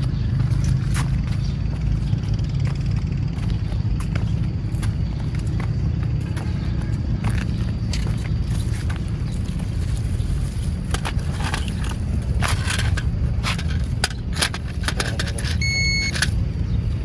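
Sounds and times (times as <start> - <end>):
leaves and stems rustling: 8.4 - 12.7
metal detector beep: 15.4 - 16.4.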